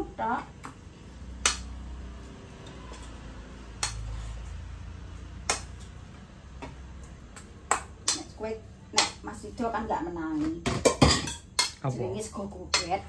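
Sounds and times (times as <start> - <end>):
spoon clinking against metal bowl: 10.7 - 11.8.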